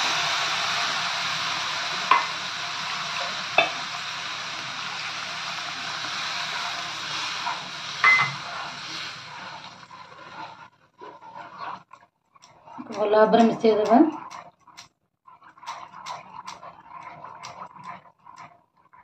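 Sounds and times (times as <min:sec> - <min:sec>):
water sizzling in hot pan: 0:00.0 - 0:14.5
spoon knocking against pan: 0:02.1 - 0:02.3, 0:03.6 - 0:03.8.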